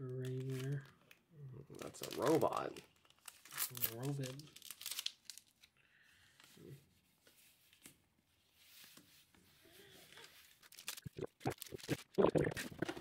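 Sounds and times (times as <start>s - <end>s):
wrappers and cards crinkling: 0.0s - 5.8s, 8.6s - 13.0s.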